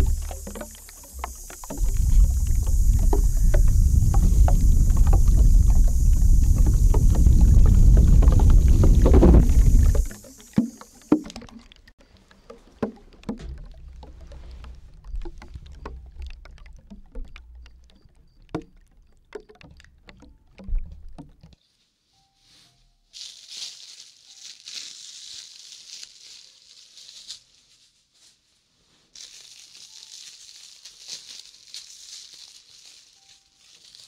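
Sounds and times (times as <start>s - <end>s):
low rumble of air on microphone: 0.0s - 10.1s
spray hissing: 0.0s - 11.3s.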